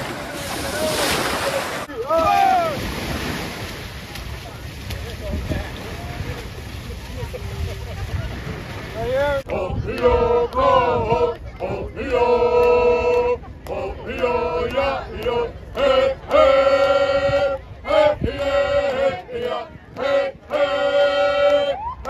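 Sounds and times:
group singing in unison: 9.5s - 21.8s.

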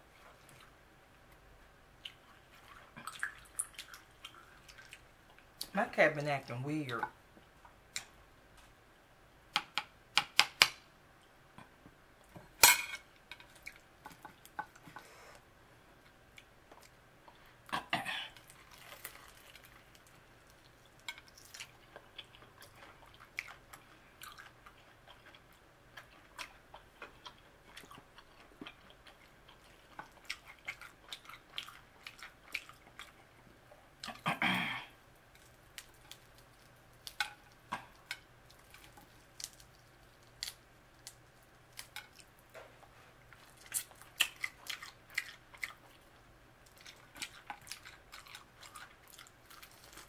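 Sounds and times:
chewing and mouth smacks: 2.0s - 5.7s, 18.3s - 33.3s, 43.3s - 50.0s.

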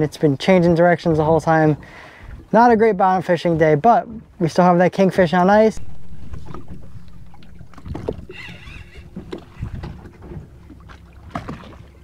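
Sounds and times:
wind and water around boat: 0.0s - 12.0s.

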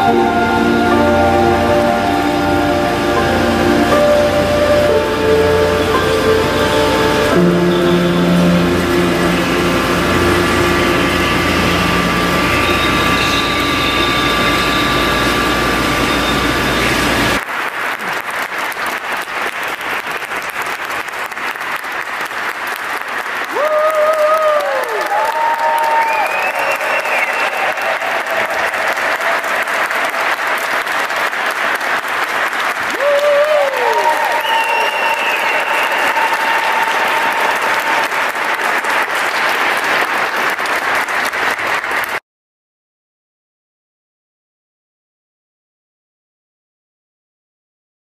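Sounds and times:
audience applauding: 0.0s - 42.2s
people clapping: 17.4s - 42.2s
whooping cheers: 23.4s - 31.4s, 32.6s - 39.7s.

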